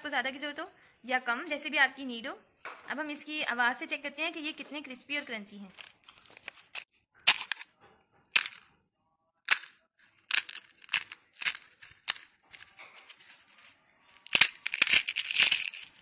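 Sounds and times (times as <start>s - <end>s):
crisp shells cracking in hand: 5.8s - 7.7s, 8.4s - 8.6s, 9.4s - 13.4s, 14.1s - 16.0s.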